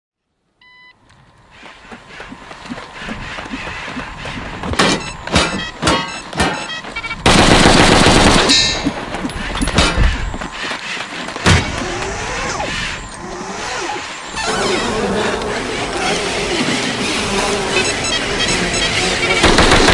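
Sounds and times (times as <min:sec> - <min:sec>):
rifle gunfire: 0:07.2 - 0:08.6, 0:19.4 - 0:19.9.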